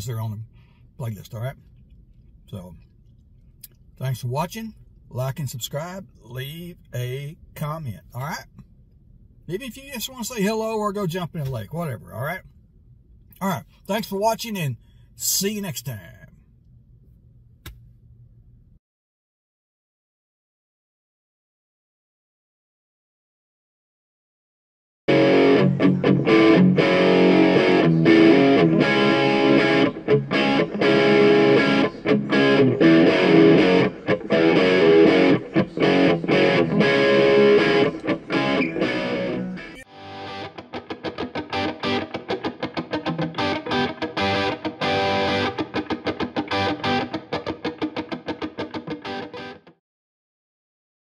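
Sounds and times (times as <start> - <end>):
outro music: 25.1 - 49.7.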